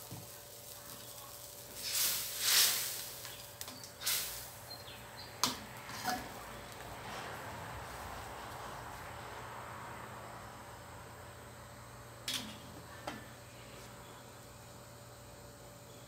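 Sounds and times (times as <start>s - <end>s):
metal spatula scraping wok: 5.2s - 7.3s.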